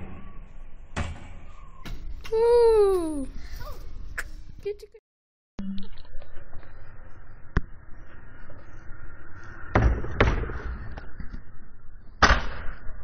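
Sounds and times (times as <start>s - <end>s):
scooter landing smack: 12.2s - 12.8s.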